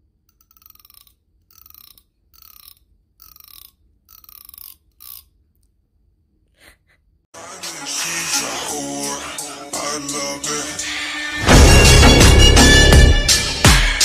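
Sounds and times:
thumbnail zipping along comb teeth: 0.2 - 5.4.

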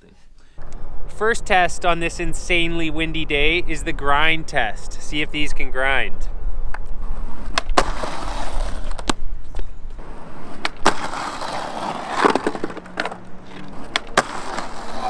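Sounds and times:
skateboard wheels rolling on concrete: 6.7 - 15.0
skateboard trucks scraping steel ledge: 7.0 - 9.2, 10.0 - 15.0
skateboard pop: 10.6 - 15.0.

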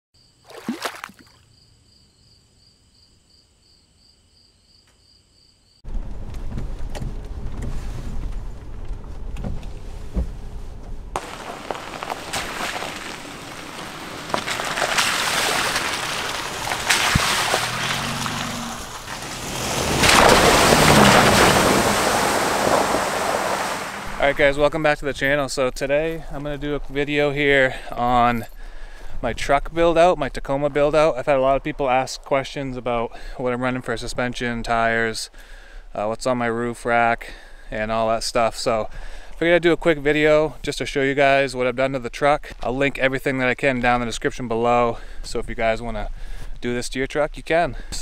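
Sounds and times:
wheel splashing through puddle: 0.5 - 1.3, 11.2 - 24.4
pickup engine and road noise: 5.8 - 32.0
tyres crackling over wet gravel: 11.2 - 33.4.

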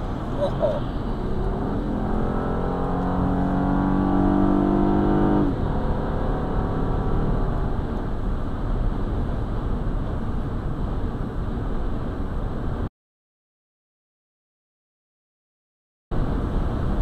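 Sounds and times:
tyre and road noise: 0.0 - 12.8
car engine drone: 0.0 - 12.9.

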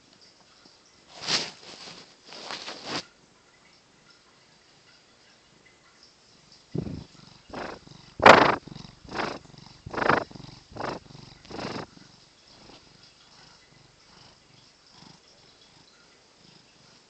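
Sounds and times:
cat purring: 1.1 - 3.1, 6.3 - 17.0.

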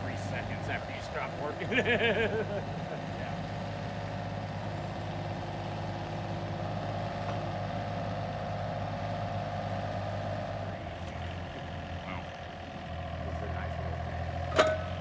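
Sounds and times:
diesel engine running: 0.0 - 15.0
post driver hitting steel post: 14.5 - 15.0.

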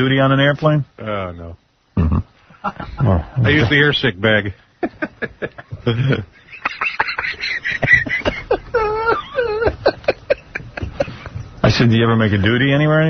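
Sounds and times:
people making wordless sounds: 1.9 - 3.9, 4.8 - 11.9.

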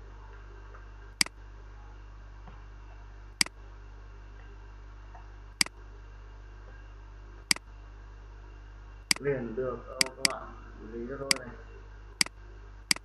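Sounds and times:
low electrical hum: 0.0 - 13.0
computer mouse clicks: 10.0 - 10.4.

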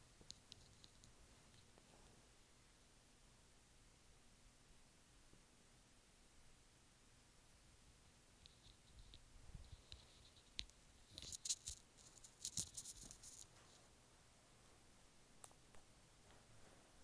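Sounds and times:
comb through hair: 8.5 - 13.8.

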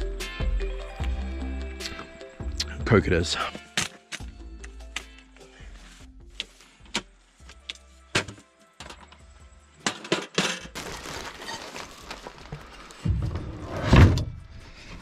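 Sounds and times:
background music: 0.0 - 15.0
rustling: 10.8 - 14.1.

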